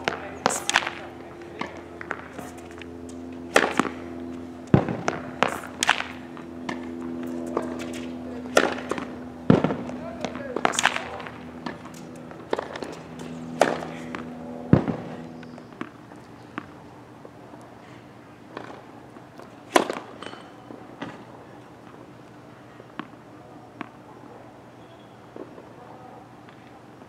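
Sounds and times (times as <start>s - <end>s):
tennis balls struck with racket: 0.0s - 16.8s, 18.5s - 21.3s
tennis balls bouncing on hard court: 0.0s - 16.9s, 18.5s - 22.0s, 22.9s - 24.0s.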